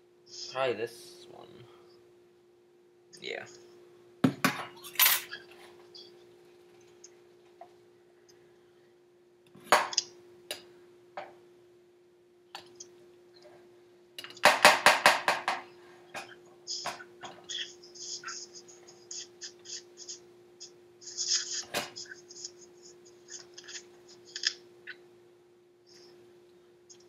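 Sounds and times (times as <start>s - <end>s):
faint steady hum: 0.0s - 27.0s.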